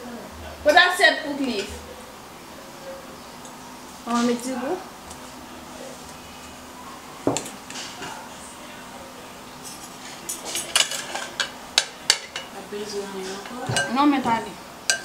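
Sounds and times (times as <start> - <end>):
cutlery clinking on plates: 9.6 - 12.5, 13.2 - 15.0.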